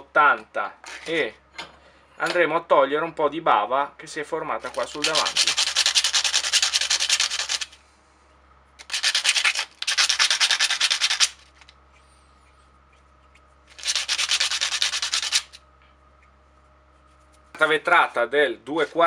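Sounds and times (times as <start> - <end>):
metal rubbing on sandpaper: 4.6 - 7.8, 8.8 - 11.7, 13.7 - 15.6.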